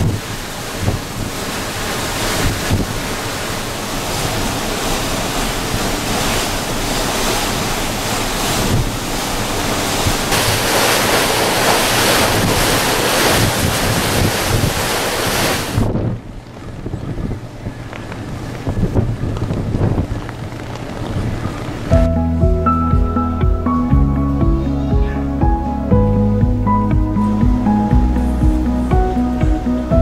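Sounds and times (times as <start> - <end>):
wind rushing over microphone: 0.0 - 23.8.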